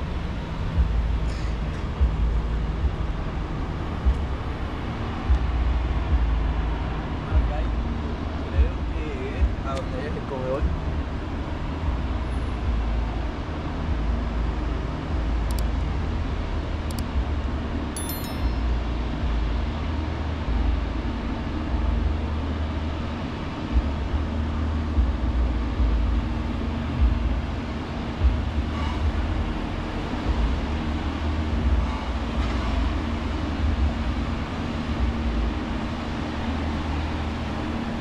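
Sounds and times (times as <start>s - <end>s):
low rumble and hum: 0.0s - 38.0s
short high chirp: 18.0s - 18.7s.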